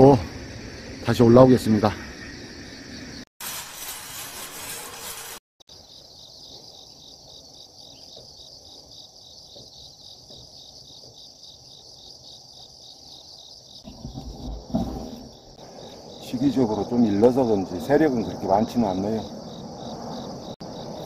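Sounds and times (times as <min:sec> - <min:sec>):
insects chirping trill: 0:00.0 - 0:03.9, 0:05.0 - 0:21.0.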